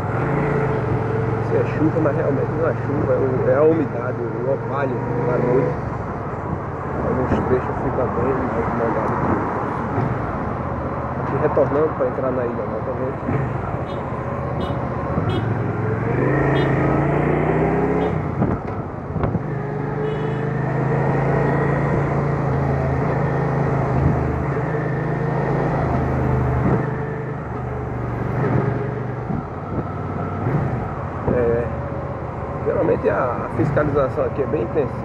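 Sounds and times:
motorcycle engine accelerating: 15.2s - 18.3s.

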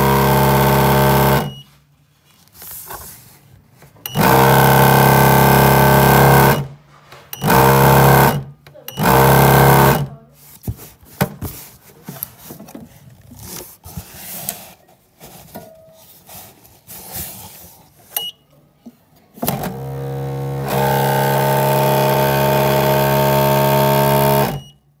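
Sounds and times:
mixing motor buzzing hum: 0.0s - 1.5s, 4.1s - 6.7s, 7.4s - 10.1s, 19.4s - 24.6s.

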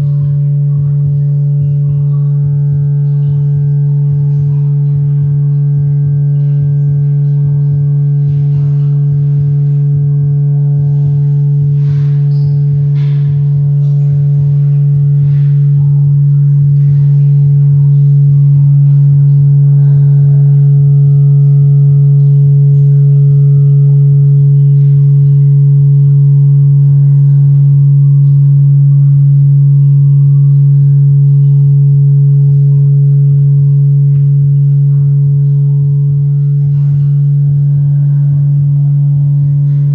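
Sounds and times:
loud low electronic drone: 0.0s - 39.9s.

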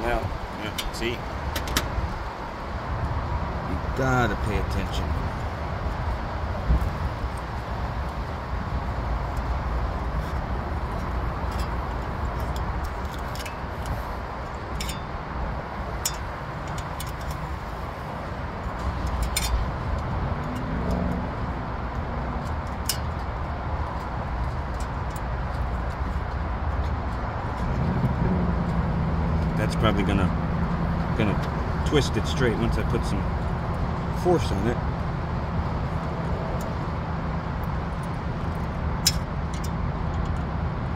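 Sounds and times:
light metallic clicks and taps: 10.9s - 15.1s, 21.9s - 27.7s.

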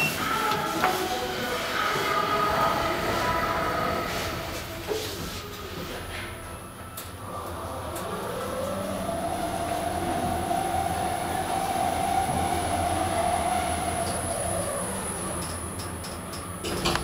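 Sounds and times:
elevator hum: 0.0s - 17.0s
elevator drive whine: 6.4s - 17.0s.

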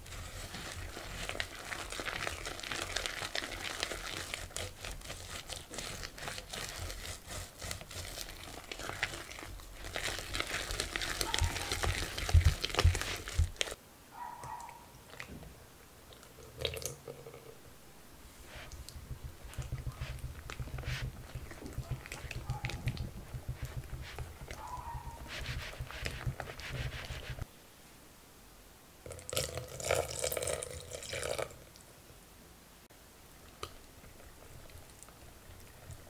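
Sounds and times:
whisk beating batter in bowl: 0.0s - 13.8s, 18.5s - 27.4s
milk pouring into bowl: 29.1s - 31.6s.

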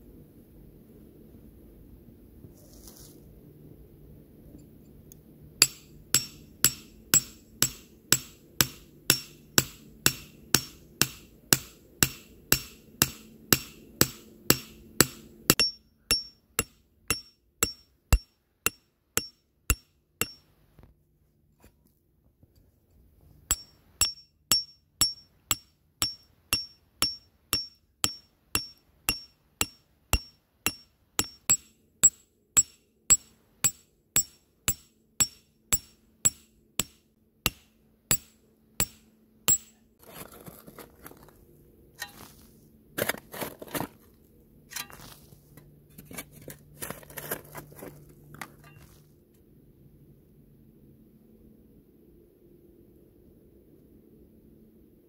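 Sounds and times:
metal tool chipping frozen soil: 5.6s - 20.4s, 23.5s - 41.4s, 42.0s - 44.1s, 44.7s - 49.0s
earth and stones shovelled: 40.0s - 41.4s, 42.0s - 49.0s.

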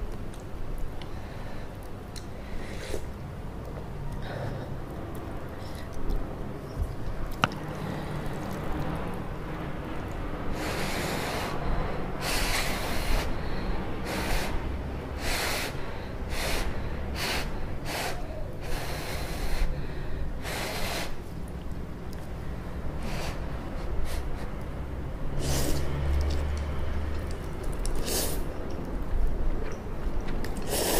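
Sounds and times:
person slurping noodles: 25.3s - 26.4s, 30.6s - 30.9s.

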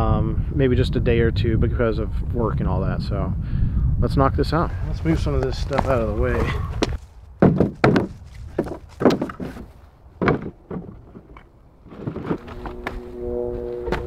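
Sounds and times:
wooden boards knocking: 6.8s - 12.6s.

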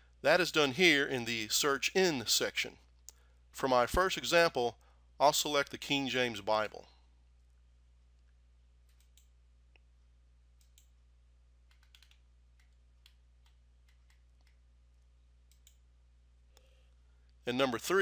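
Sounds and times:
computer mouse clicks: 8.8s - 9.3s, 10.6s - 11.0s, 11.7s - 14.6s, 15.4s - 15.8s.

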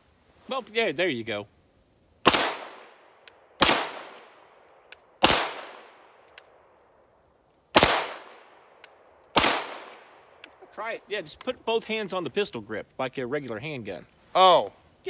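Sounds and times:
pistol shots echoing: 2.2s - 3.0s, 3.6s - 4.4s, 5.2s - 6.1s, 7.7s - 8.6s, 9.3s - 10.2s.

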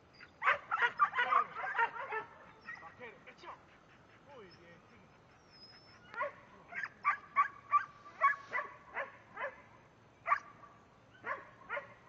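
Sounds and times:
dog barking: 0.4s - 2.8s, 6.1s - 9.6s, 10.3s - 10.5s, 11.2s - 12.0s.

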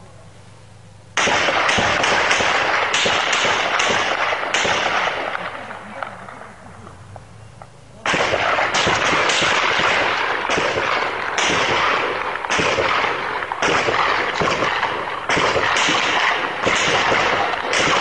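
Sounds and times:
loud blast: 8.0s - 18.0s
crackle of explosive bangs: 8.1s - 18.0s.

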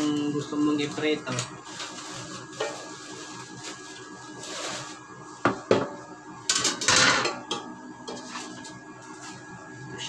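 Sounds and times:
bubble wrap rustling and crinkling: 0.6s - 5.4s.

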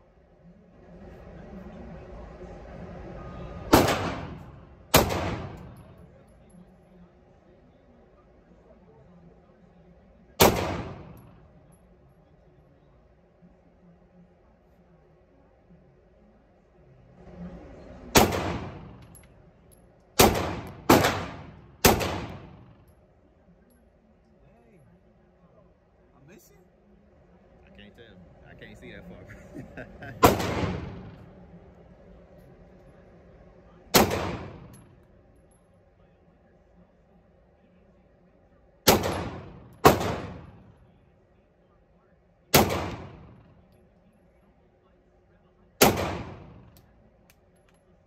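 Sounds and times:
pistol shots echoing indoors: 3.7s - 6.0s, 10.4s - 11.2s, 20.2s - 22.9s, 33.9s - 34.8s, 38.8s - 40.6s, 42.5s - 43.5s, 45.8s - 46.8s.

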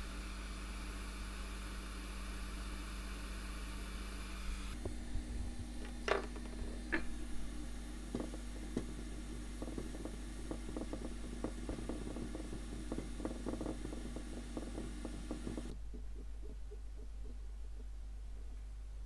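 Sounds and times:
fan hum and hiss: 0.0s - 19.0s
cotton bud scrubbing circuit board: 8.1s - 18.6s.

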